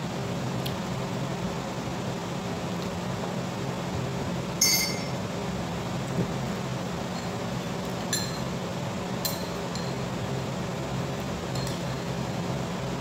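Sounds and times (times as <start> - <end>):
steady low hum: 0.0 - 13.0
tableware clinking on plates: 4.6 - 5.2.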